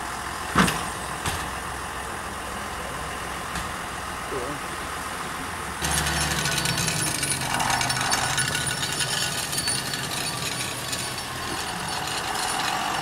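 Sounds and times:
tractor engine running: 0.0 - 13.0
metal rattling and scraping: 5.8 - 13.0.

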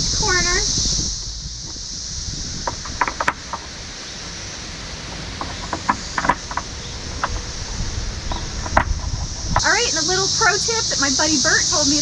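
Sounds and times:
cicadas chorus: 0.0 - 12.0.

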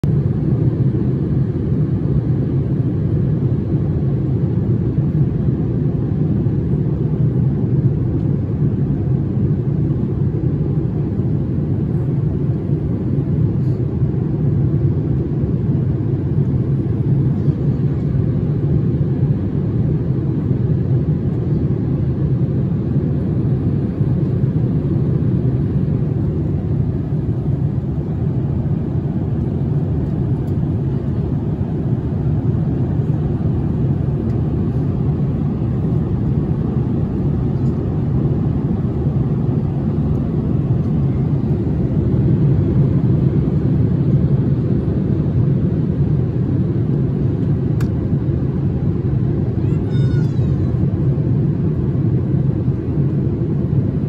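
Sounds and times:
airliner cabin engine rumble: 0.0 - 54.0.

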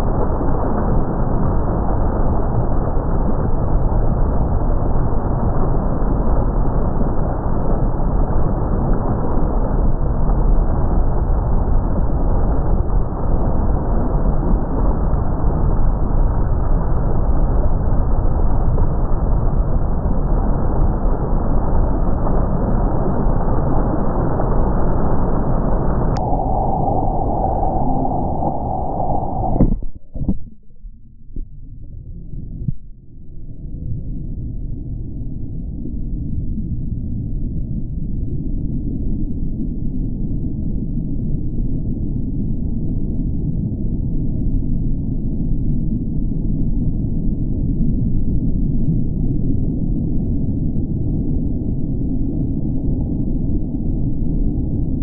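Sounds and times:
water rushing over rocks: 22.4 - 30.5.

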